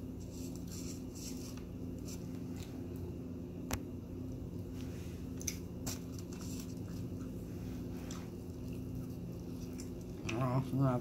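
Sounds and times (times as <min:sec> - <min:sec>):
steady low hum: 0:00.0 - 0:11.0
wet chewing sounds: 0:05.3 - 0:10.8.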